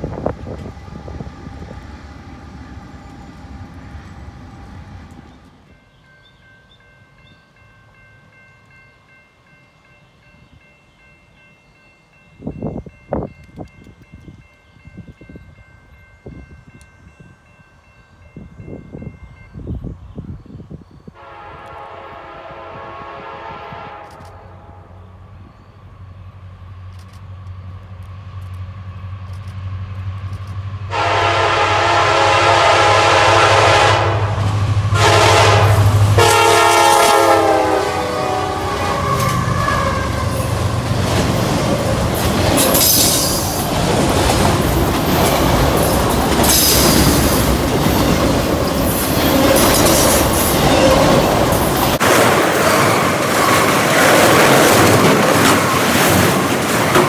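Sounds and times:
train wheels rolling on rails: 0.0 - 9.9, 25.2 - 57.0
diesel locomotive engine hum: 0.0 - 57.0
train air horn blasts: 21.2 - 25.2, 30.9 - 40.6
wheels clacking over rail joints: 38.7 - 57.0.

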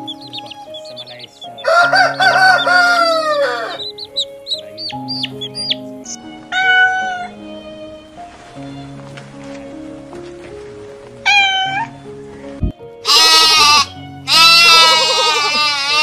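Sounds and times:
high repeated chirps: 0.0 - 3.0, 3.7 - 6.2
background music with held notes: 0.0 - 16.0
rooster crowing: 1.6 - 3.9.

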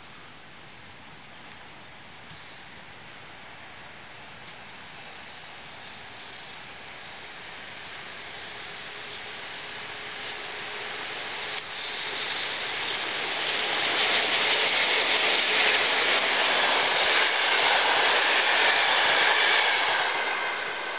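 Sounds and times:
train wheels rumbling on rail: 3.4 - 20.9.

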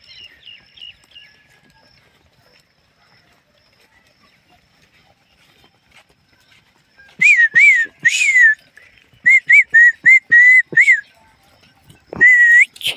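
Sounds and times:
person whistling short notes: 7.2 - 8.6, 9.2 - 11.1, 12.2 - 12.9.

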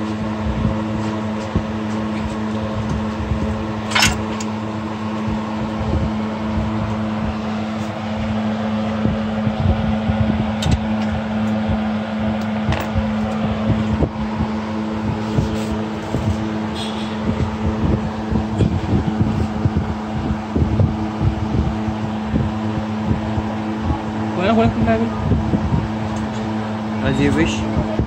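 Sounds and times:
machine hum: 0.0 - 28.0
hand tools clinking on metal: 3.9 - 4.5.

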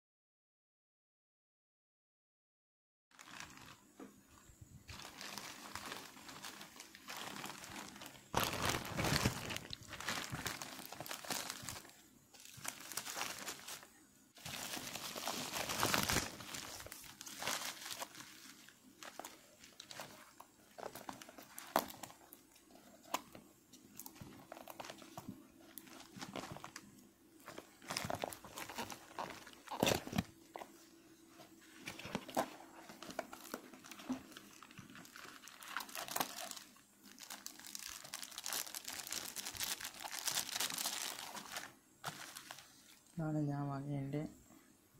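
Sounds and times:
plastic mailer crinkling: 3.2 - 4.0, 4.8 - 30.8, 31.4 - 42.8.

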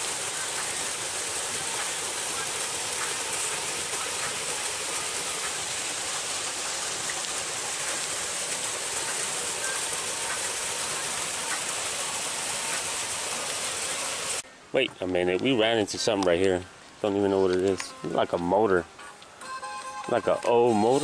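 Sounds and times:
waterfall splashing into pool: 0.0 - 14.4, 20.1 - 21.0.

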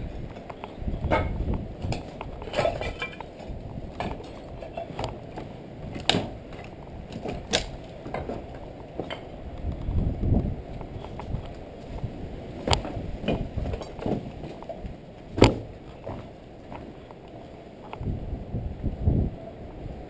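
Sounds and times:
footsteps crunching over rubble: 0.0 - 18.1
loose debris clinking: 0.1 - 9.3.

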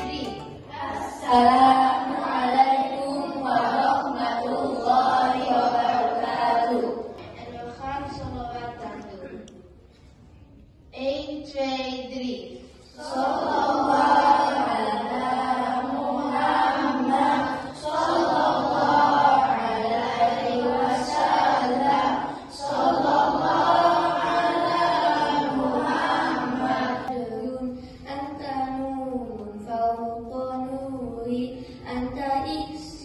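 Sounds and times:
children singing devotional song: 0.0 - 8.8, 12.7 - 33.0.

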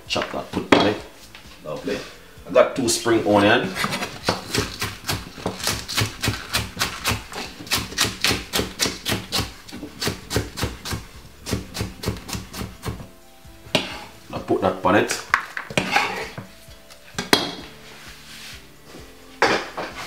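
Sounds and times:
knife chopping on wooden board: 3.7 - 13.1, 13.7 - 14.1.

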